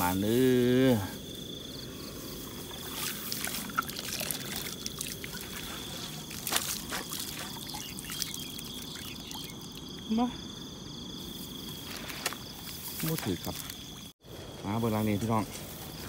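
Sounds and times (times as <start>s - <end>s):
high insect buzz: 0.0s - 16.0s
water pouring onto grass: 2.2s - 10.1s, 11.9s - 14.0s.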